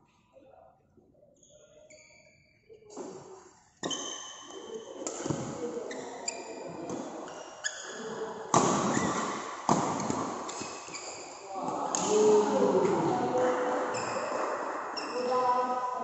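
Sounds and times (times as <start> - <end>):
shoe squeaks on court floor: 1.4 - 11.4
racket hitting shuttlecock: 5.0 - 6.0, 8.5 - 13.0
echoing hall background noise: 8.1 - 16.0.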